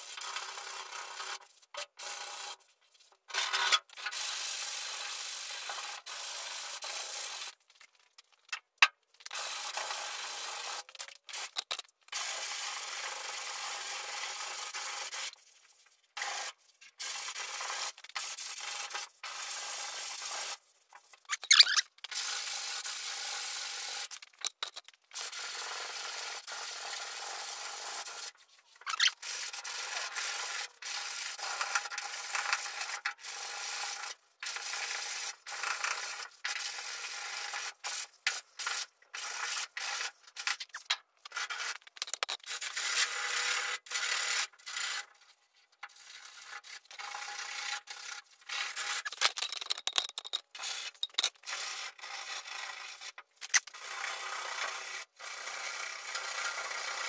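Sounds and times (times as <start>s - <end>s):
sandpaper rubbing on filler: 46.0s - 49.2s.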